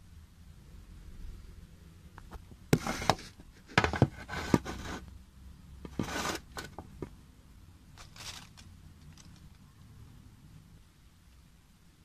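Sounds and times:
rustling scrapes: 0:02.7 - 0:05.1, 0:05.9 - 0:06.9, 0:08.0 - 0:09.6.

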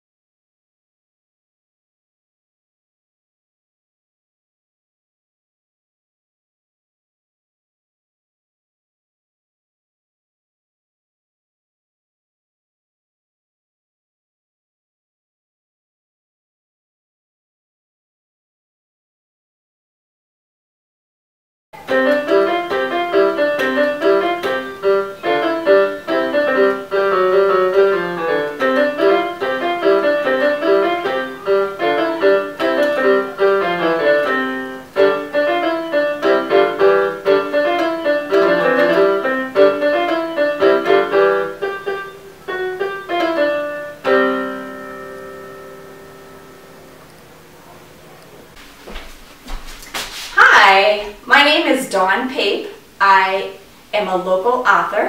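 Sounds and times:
lively piano music: 0:21.8 - 0:48.6.

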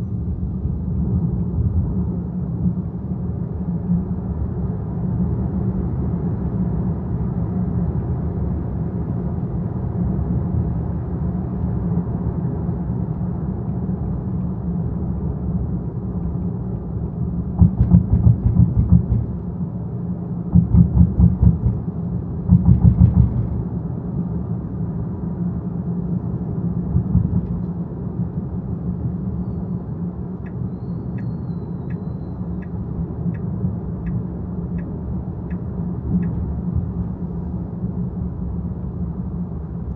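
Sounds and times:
car driving rumble: 0:12.4 - 0:39.9
pulsing rumble: 0:17.2 - 0:23.9, 0:26.0 - 0:28.7.

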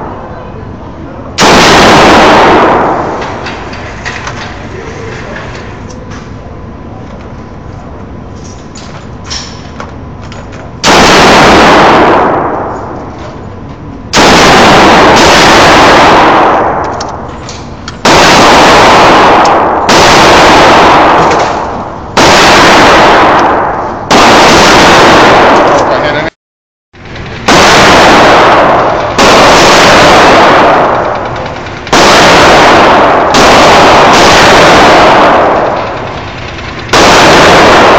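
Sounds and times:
steady background noise: 0:00.0 - 0:26.3, 0:27.0 - 0:37.9
rifle shots echoing: 0:01.4 - 0:04.8, 0:10.8 - 0:13.2, 0:14.1 - 0:17.3, 0:18.0 - 0:26.3, 0:27.1 - 0:37.9.

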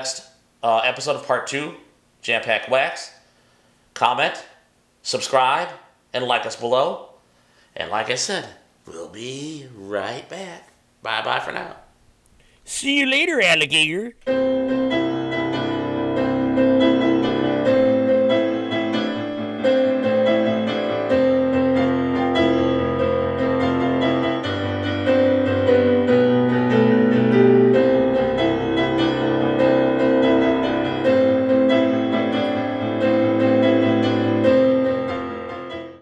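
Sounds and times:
piano background music: 0:14.3 - 0:36.0.

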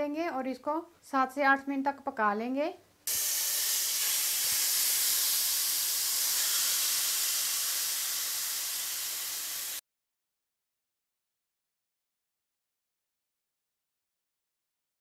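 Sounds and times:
chicken sizzling in a frying pan: 0:03.1 - 0:09.8.

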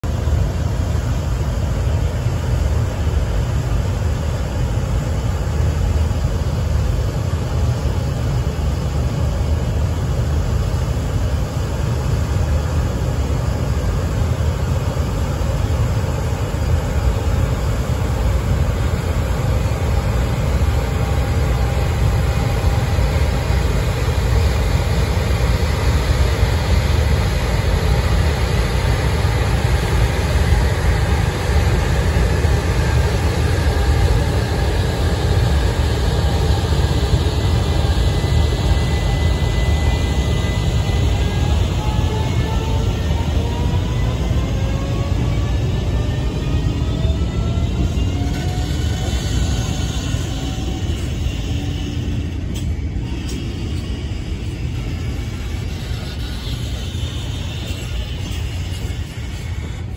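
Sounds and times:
electric locomotive rumbling: 0:00.0 - 0:59.9
faint whine: 0:00.0 - 0:59.9.

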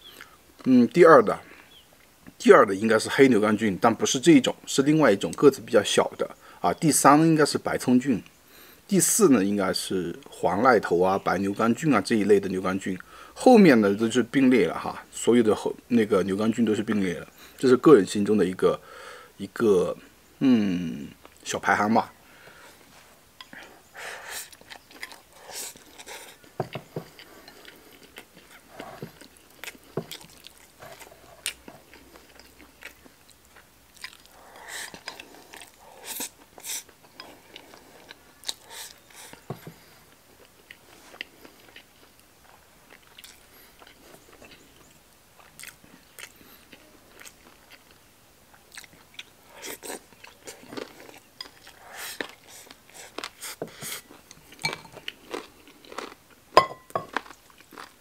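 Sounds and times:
man chewing food: 0:22.4 - 0:58.0.

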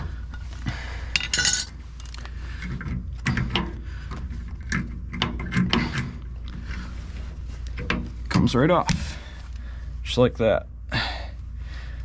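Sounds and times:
metal parts clinking and knocking: 0:01.1 - 0:03.8.

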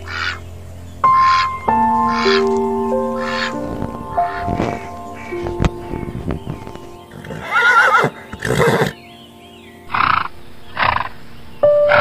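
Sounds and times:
background music: 0:00.0 - 0:12.0
horse whinnying: 0:07.1 - 0:09.0.

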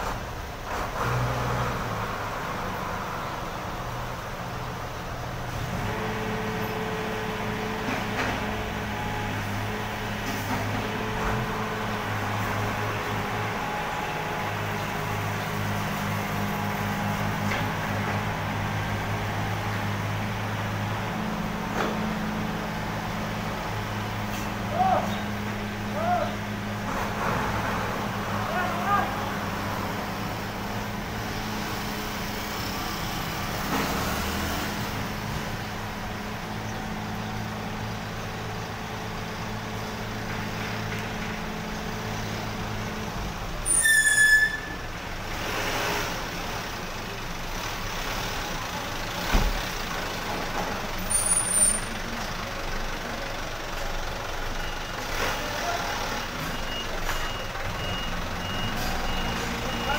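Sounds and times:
diesel truck engine running: 0:00.0 - 0:43.8, 0:44.6 - 0:59.9
short high-pitched squeal: 0:43.6 - 0:44.9, 0:51.1 - 0:51.9
truck reversing beeps: 0:53.9 - 0:59.9.

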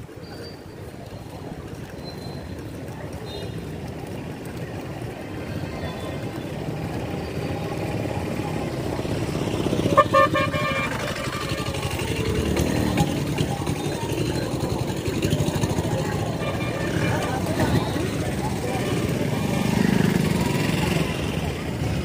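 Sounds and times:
street traffic: 0:00.0 - 0:22.0
vehicle horn honking: 0:09.9 - 0:12.0, 0:16.2 - 0:18.0.

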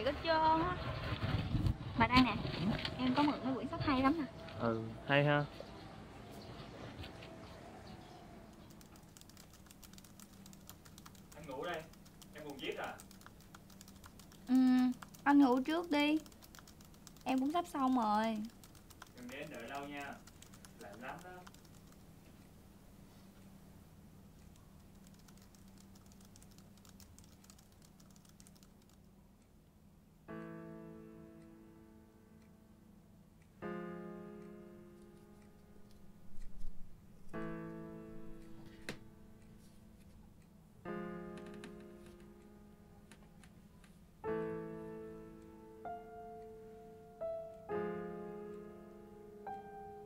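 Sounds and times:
typing on laptop keyboard: 0:08.1 - 0:22.3, 0:24.4 - 0:29.1
piano chord: 0:30.3 - 0:33.0, 0:33.6 - 0:36.3, 0:37.4 - 0:39.4, 0:44.2 - 0:50.0.

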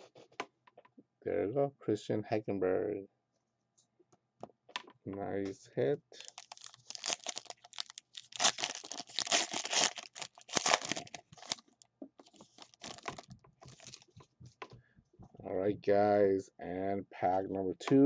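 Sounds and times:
plastic wrapper crinkling and tearing: 0:06.2 - 0:14.2.

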